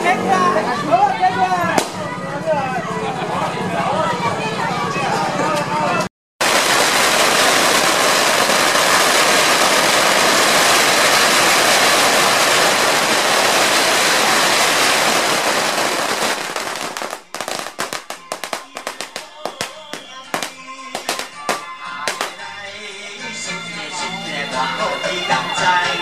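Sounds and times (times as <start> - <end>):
firecrackers crackling and banging: 1.6 - 2.5, 6.4 - 22.6.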